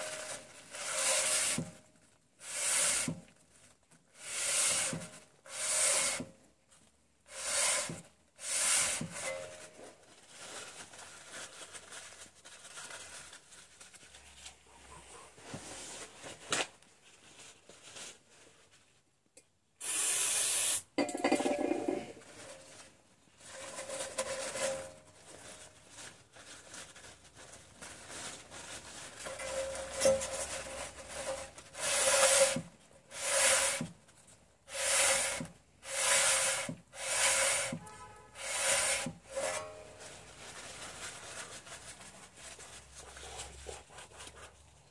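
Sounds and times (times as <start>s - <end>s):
rag wiping brake disc: 0.0s - 1.7s, 4.2s - 6.2s, 7.3s - 9.5s, 29.2s - 33.9s, 34.7s - 39.9s.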